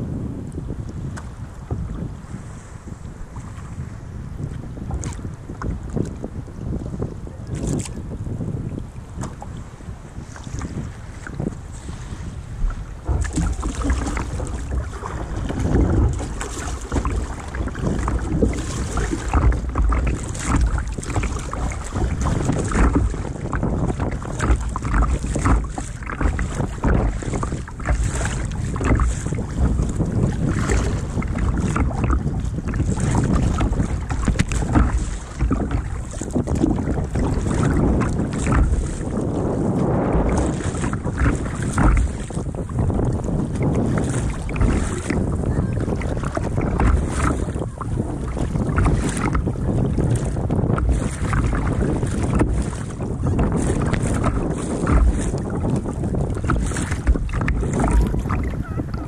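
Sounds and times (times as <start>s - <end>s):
water splashing against hull: 0.0s - 59.0s
wind buffeting microphone: 0.0s - 59.0s.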